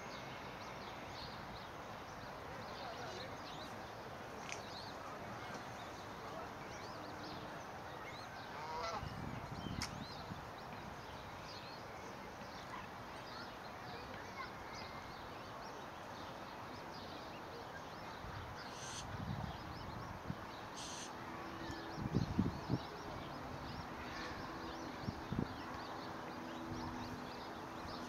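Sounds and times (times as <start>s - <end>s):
steady outdoor hiss: 0.0s - 28.0s
cygnets peeping: 20.6s - 28.0s.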